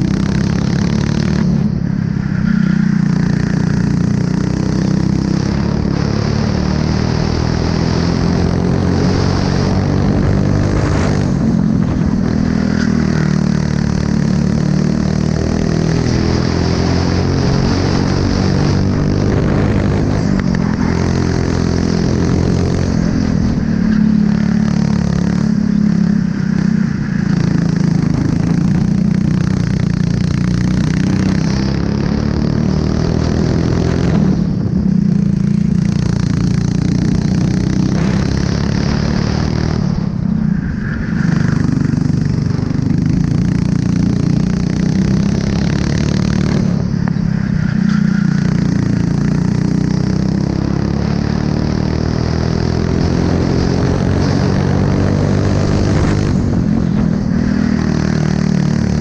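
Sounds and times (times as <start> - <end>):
kart engine running hard: 0.0 - 59.0.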